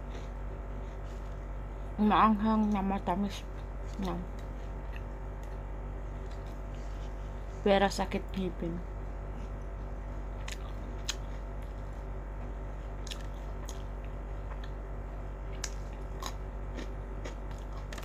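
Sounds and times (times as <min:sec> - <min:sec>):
person chewing cucumber: 0:00.0 - 0:01.6, 0:03.8 - 0:07.2, 0:10.4 - 0:12.0, 0:12.9 - 0:14.8, 0:15.4 - 0:18.0
steady low hum: 0:00.0 - 0:18.0.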